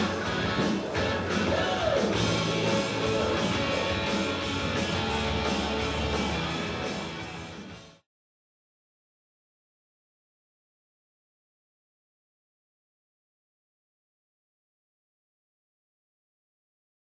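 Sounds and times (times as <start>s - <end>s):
rock music with guitar: 0.0s - 8.0s.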